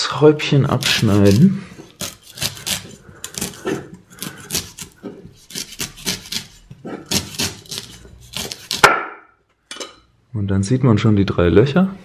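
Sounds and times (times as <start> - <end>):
knife cutting coconut on board: 0.7 - 9.1.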